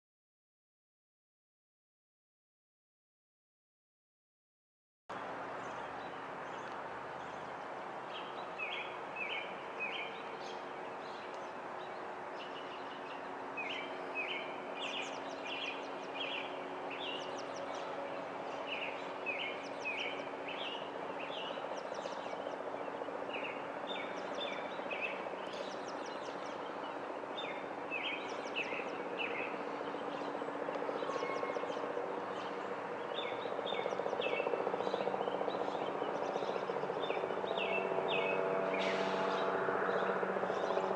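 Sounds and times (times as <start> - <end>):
small songbirds chirping: 5.6 - 30.4.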